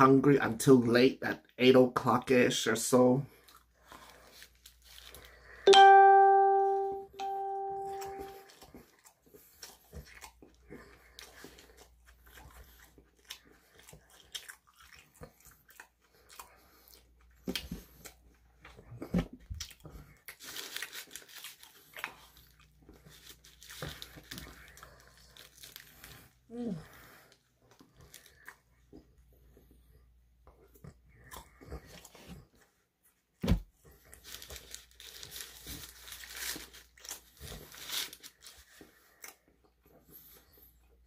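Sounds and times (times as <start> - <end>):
chewing and biting food: 3.3 - 5.4, 7.9 - 26.4, 30.6 - 32.8, 33.9 - 41.0
paper wrapper rustling: 20.3 - 22.4, 23.0 - 26.2, 34.1 - 38.9.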